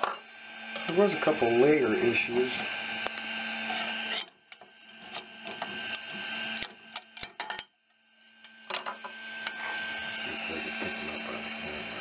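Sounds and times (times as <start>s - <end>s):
machine hum: 0.0s - 7.2s, 7.9s - 12.0s
metal scraper scraping build plate: 3.6s - 6.7s.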